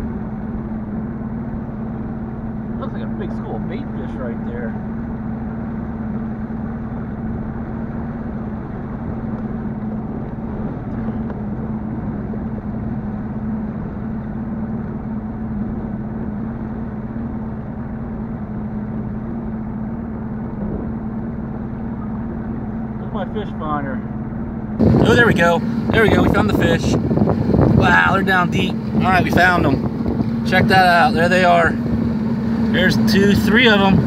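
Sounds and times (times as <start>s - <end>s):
outboard motor running: 0.0s - 34.0s.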